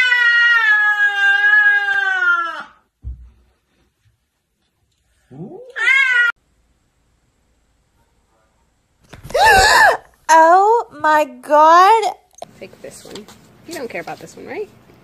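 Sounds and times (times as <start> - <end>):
cat crying with wavering pitch: 0.0 - 2.7, 5.5 - 6.4
cat meowing: 5.7 - 6.4.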